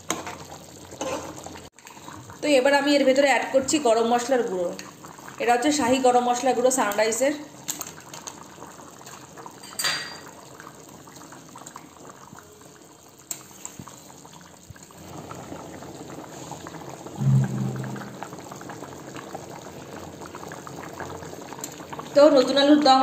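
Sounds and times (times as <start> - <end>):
low thump: 17.2 - 18.4.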